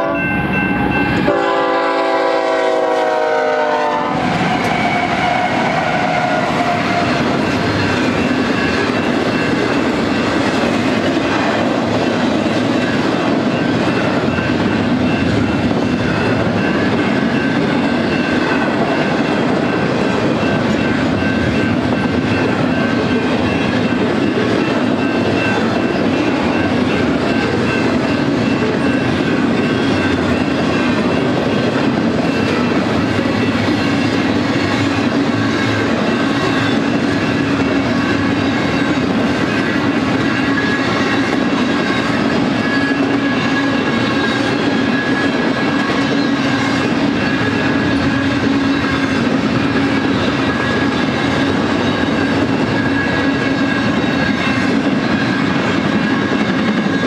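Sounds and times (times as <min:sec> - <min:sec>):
train horn blast: 0:00.0 - 0:00.3, 0:01.1 - 0:07.4
freight train wheels clacking: 0:00.0 - 0:57.0.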